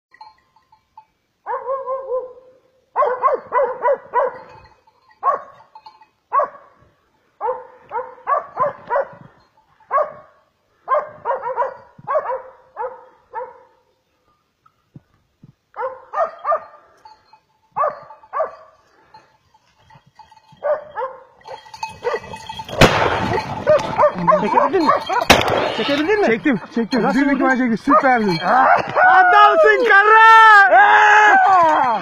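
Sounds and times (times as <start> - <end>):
dog barking: 1.4 - 4.5, 5.2 - 5.6, 6.3 - 6.8, 7.4 - 9.2, 9.9 - 13.8, 15.8 - 16.9, 17.8 - 18.8, 20.6 - 22.3, 23.6 - 25.3.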